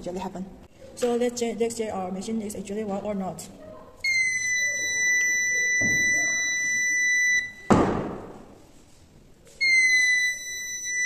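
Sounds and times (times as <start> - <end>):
piezo buzzer high beep: 4.1 - 7.7, 9.6 - 11.0
loud thump: 7.7 - 8.6.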